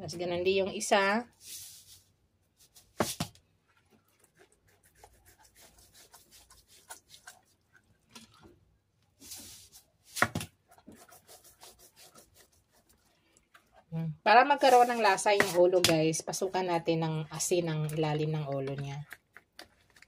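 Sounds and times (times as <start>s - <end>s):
hands rubbing salt on fish: 9.2s - 9.9s, 10.9s - 13.1s, 14.5s - 15.6s.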